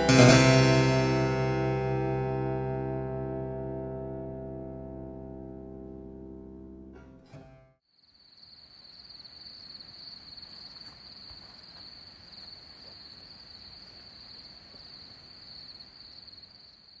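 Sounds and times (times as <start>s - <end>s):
crickets trilling: 7.9s - 17.0s.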